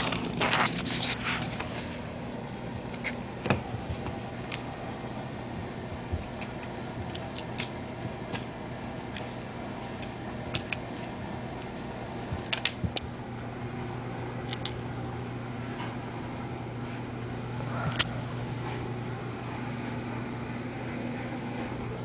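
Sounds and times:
plastic crinkling: 0.0 - 2.0
steady low hum: 0.0 - 22.0.

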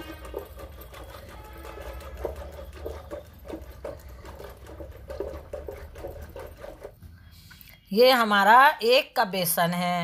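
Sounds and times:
liquid sloshing in a vessel: 0.0 - 7.4.

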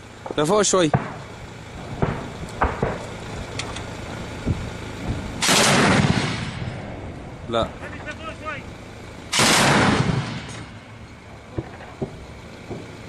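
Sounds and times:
gunshots: 0.3 - 1.3, 2.0 - 3.2, 5.4 - 6.7, 9.3 - 10.8
loud blast: 0.8 - 3.1, 5.1 - 7.1, 9.3 - 12.8.

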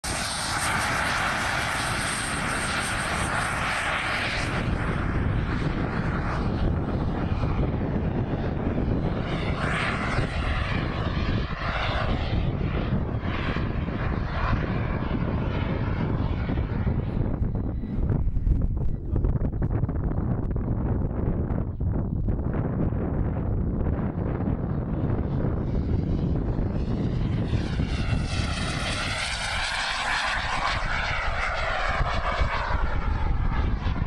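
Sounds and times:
model aircraft engine whine: 0.0 - 34.0
wind buffeting microphone: 0.0 - 34.0.

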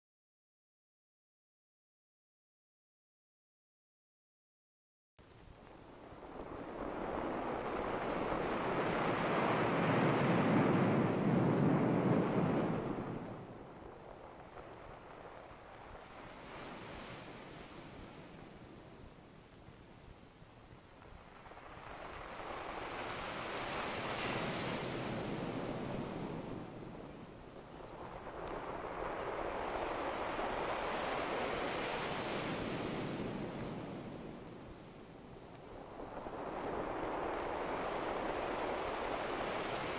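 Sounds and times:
ocean wave washing in: 5.9 - 19.0, 21.0 - 39.9
sea surf rushing: 5.9 - 19.2, 21.1 - 39.9.

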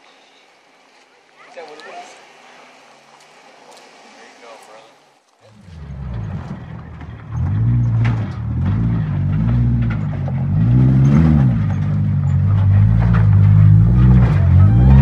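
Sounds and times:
truck engine revving: 5.5 - 15.0.

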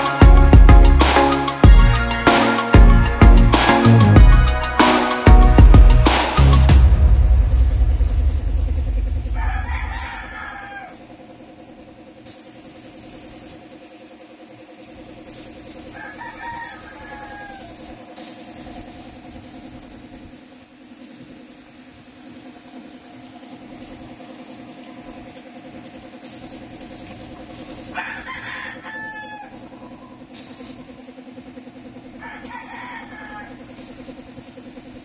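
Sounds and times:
steady machine hum: 0.0 - 35.0
rooster crowing: 9.2 - 11.1, 15.9 - 18.0, 27.8 - 30.2, 32.2 - 34.2.

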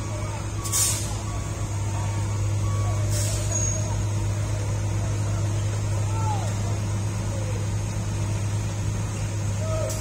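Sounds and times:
diesel engine idling: 0.0 - 10.0
air brake hiss: 0.6 - 1.2, 3.1 - 3.9.

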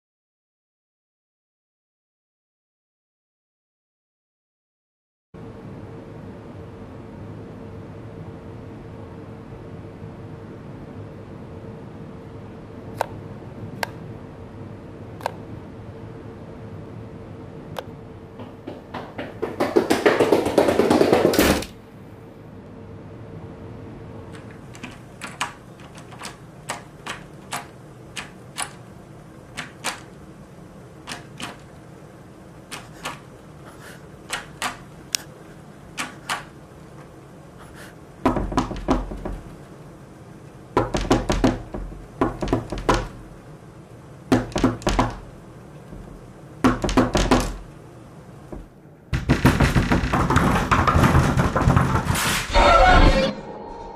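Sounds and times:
knocking on a door: 18.4 - 21.7, 38.2 - 39.5, 40.8 - 43.3, 44.3 - 45.3, 45.9 - 47.7, 48.5 - 52.2
rapid pounding on door: 18.4 - 21.7, 38.2 - 39.6, 40.8 - 43.4, 44.3 - 47.7, 48.5 - 52.3.

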